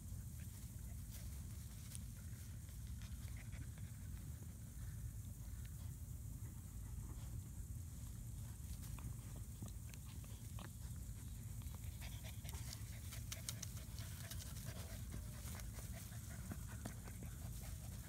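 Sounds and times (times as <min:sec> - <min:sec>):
puppies scuffling in grass: 0:00.0 - 0:18.0
puppies panting: 0:00.4 - 0:18.0
small clicks and rustles: 0:08.6 - 0:15.8.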